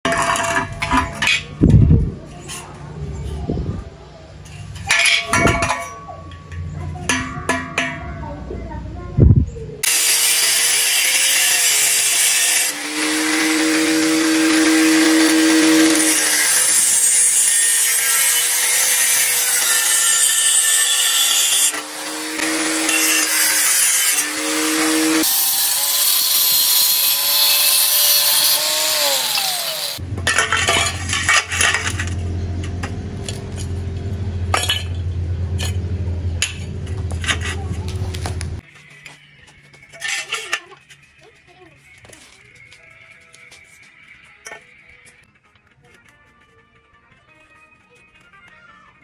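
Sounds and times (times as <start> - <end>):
angle grinder cutting steel: 9.8 - 34.9.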